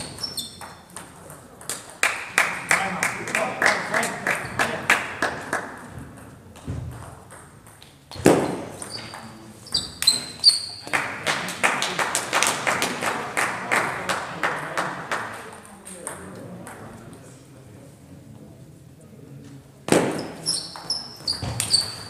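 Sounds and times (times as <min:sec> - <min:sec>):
short high squeaks: 0:00.0 - 0:00.8, 0:08.8 - 0:10.8, 0:20.3 - 0:22.0
table tennis ball pinging: 0:00.0 - 0:01.9.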